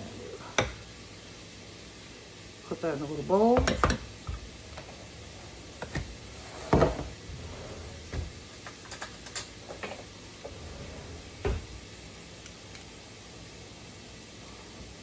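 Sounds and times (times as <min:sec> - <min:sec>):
faint steady hiss: 0:00.0 - 0:15.0
kitchen utensils clicking and knocking: 0:03.5 - 0:04.9, 0:08.0 - 0:10.0.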